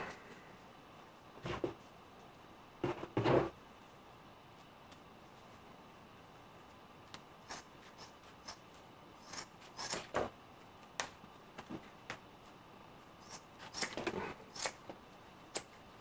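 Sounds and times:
fabric shears snipping: 13.2 - 14.9.

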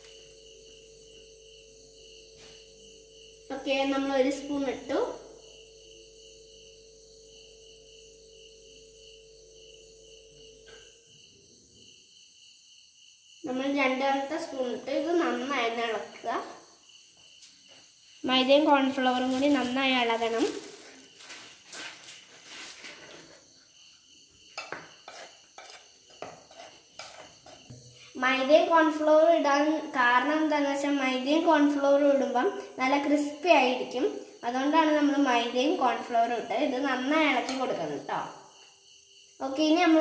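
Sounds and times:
faint high-pitched chirring: 0.0 - 12.1
insect chirping in pulses: 0.0 - 40.0
spoon scraping flour in bowl: 24.6 - 27.8.

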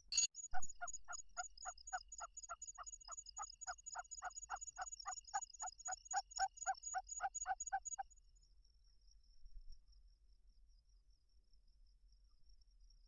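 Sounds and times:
squeaky lure call chirps: 0.0 - 1.4.

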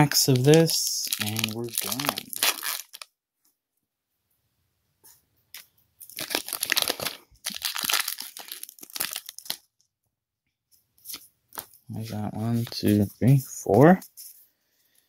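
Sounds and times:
foil wrapper crinkling and tearing: 0.1 - 3.1, 6.0 - 9.7.

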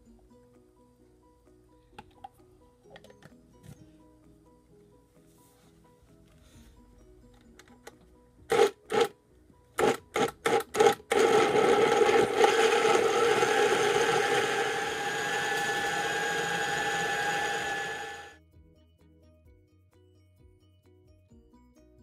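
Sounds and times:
blender motor running: 8.5 - 9.1, 9.8 - 18.4.

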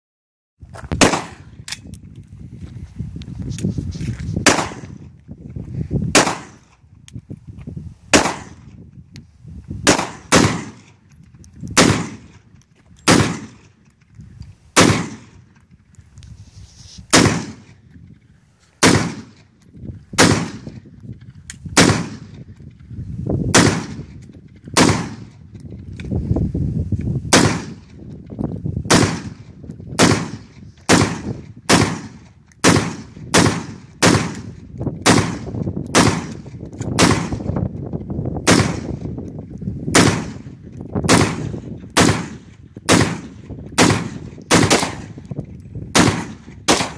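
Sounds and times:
pistol gunshots: 1.0 - 1.6, 4.4 - 5.0, 6.1 - 6.8, 8.1 - 8.7, 9.8 - 11.0, 11.7 - 13.8, 14.8 - 15.5, 17.1 - 17.8, 18.8 - 19.5, 20.2 - 20.8, 21.8 - 22.4, 23.5 - 25.4, 27.3 - 27.9, 28.9 - 37.5, 38.4 - 39.1, 39.9 - 45.2, 45.9 - 46.9.

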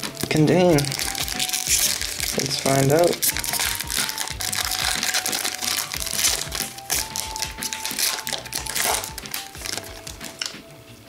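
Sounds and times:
plastic wrapper crinkling: 0.0 - 10.6
quiet background music: 0.0 - 11.0.

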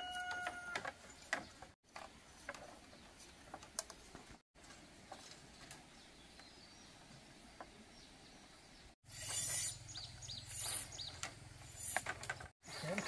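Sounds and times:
bird chirps: 7.6 - 13.0.

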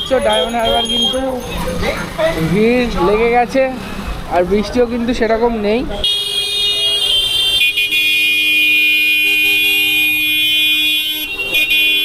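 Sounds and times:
vehicle horns honking: 0.0 - 1.5, 5.9 - 12.0.

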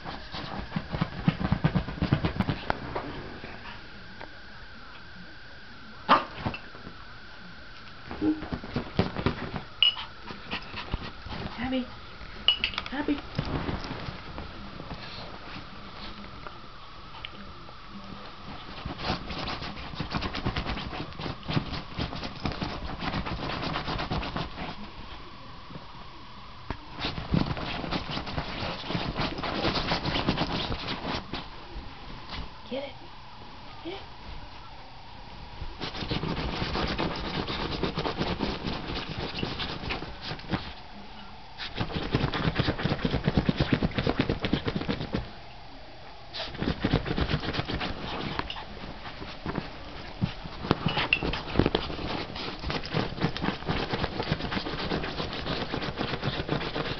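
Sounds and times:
puppy scratching at bedding: 0.0 - 3.2, 8.1 - 11.8, 13.1 - 16.3, 18.1 - 25.1, 26.9 - 32.5, 35.6 - 40.9, 41.6 - 45.3, 46.3 - 56.9.

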